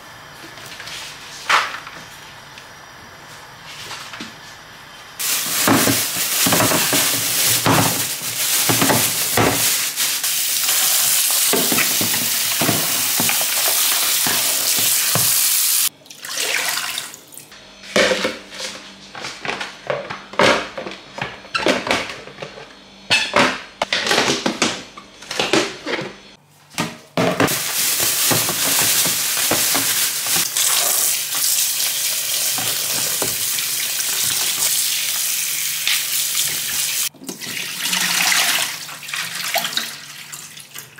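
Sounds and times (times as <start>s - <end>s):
plastic bags rustling: 5.2s - 15.3s, 27.4s - 34.9s.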